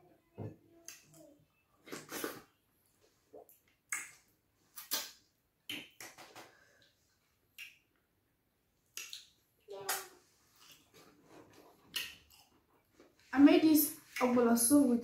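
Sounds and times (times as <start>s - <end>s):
wet mouth noises and smacks: 3.3s - 6.9s, 7.5s - 8.0s, 8.8s - 10.9s, 11.8s - 12.6s.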